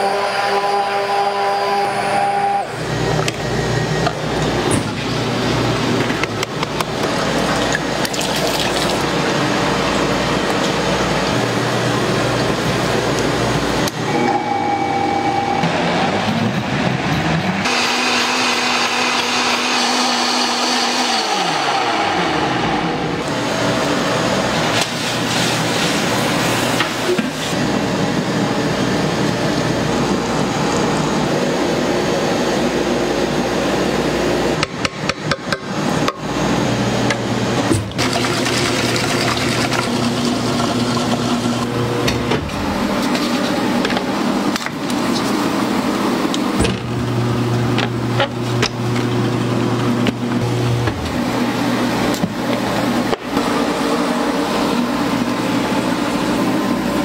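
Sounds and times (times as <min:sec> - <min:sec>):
blender motor whining: 0:00.0 - 0:04.6, 0:17.6 - 0:23.4
ice cream machine running: 0:00.0 - 0:57.0.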